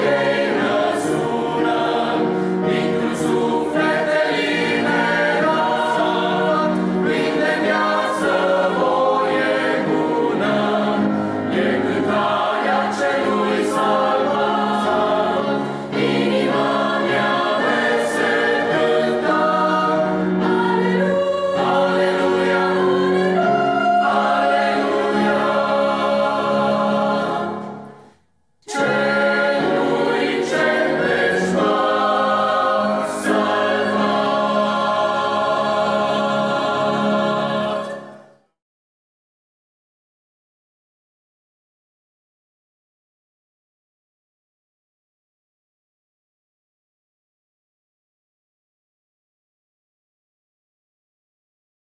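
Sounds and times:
mixed choir singing a hymn: 0.0s - 28.1s, 28.7s - 38.4s.

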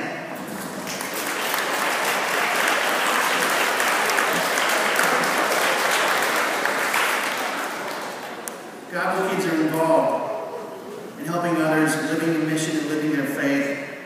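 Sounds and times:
audience applauding: 0.6s - 8.6s.

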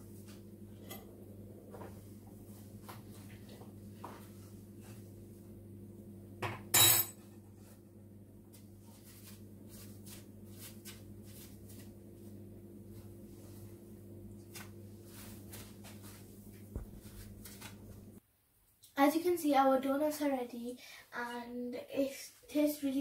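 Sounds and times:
steady low hum: 0.0s - 18.2s.

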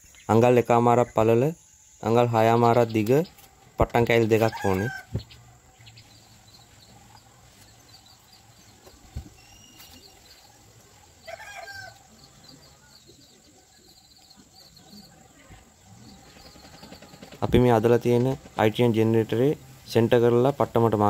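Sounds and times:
faint high chirps: 0.0s - 17.6s
bird call: 4.4s - 18.6s.

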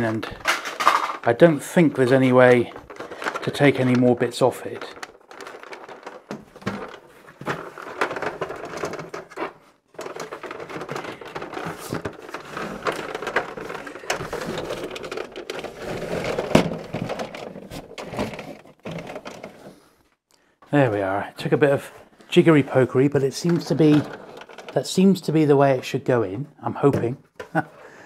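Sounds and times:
cardboard scraping and rustling: 2.1s - 19.9s.

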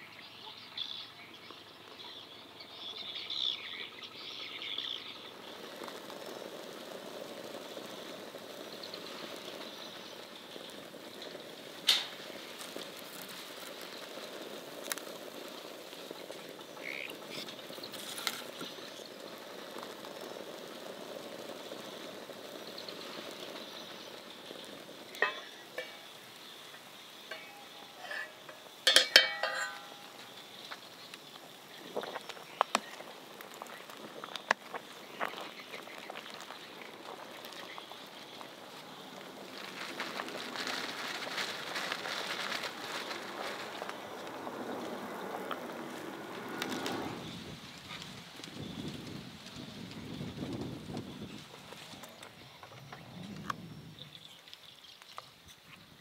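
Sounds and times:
food sizzling in a pan: 2.8s - 49.3s
utensil clinking against pan: 25.2s - 26.0s, 27.3s - 30.2s.

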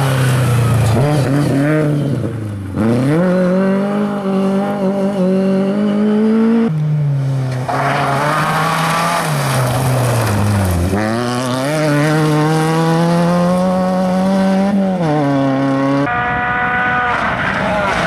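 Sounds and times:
rally car engine revving: 0.0s - 18.0s
rally car engine at steady revs: 0.8s - 6.8s, 10.5s - 16.1s.

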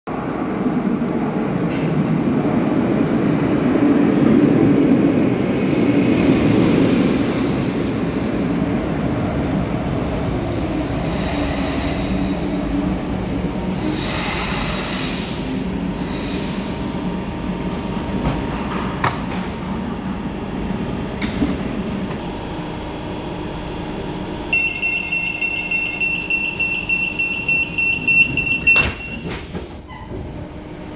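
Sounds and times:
electric train slowing to a stop: 4.6s - 18.9s, 19.6s - 30.9s
rapid door warning beeps: 24.6s - 29.4s
train doors banging shut: 27.9s - 30.3s.

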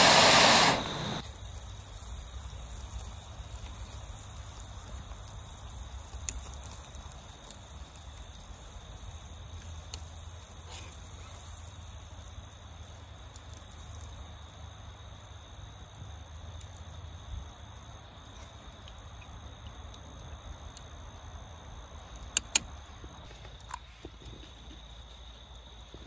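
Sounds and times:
crickets and insects chirring: 0.0s - 26.0s
sharp clicks: 22.2s - 22.7s.

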